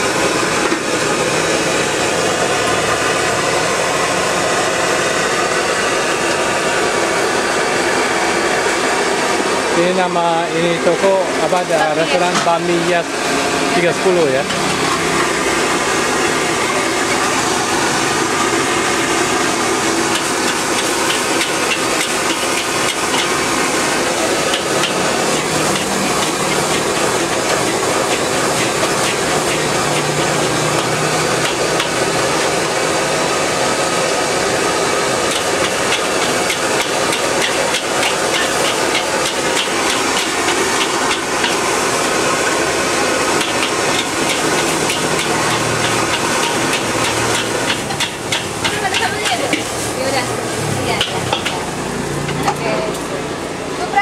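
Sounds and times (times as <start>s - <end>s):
frying hiss: 0.0s - 54.0s
metal spatula clanking on wok: 24.5s - 32.0s, 43.4s - 49.9s, 50.9s - 51.6s.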